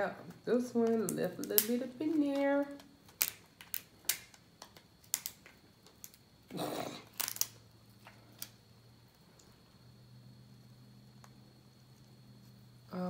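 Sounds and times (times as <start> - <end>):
lobster shell cracking: 1.4 - 1.7, 3.1 - 6.3, 6.9 - 7.6.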